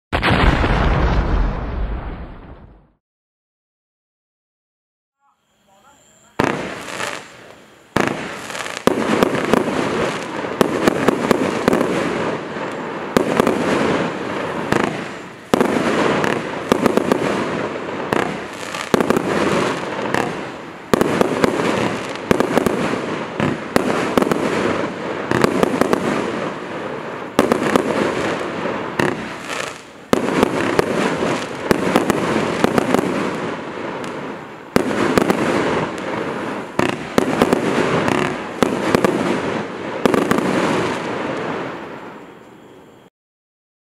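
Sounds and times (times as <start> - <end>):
firework cake shots and crackling: 6.4 - 41.8.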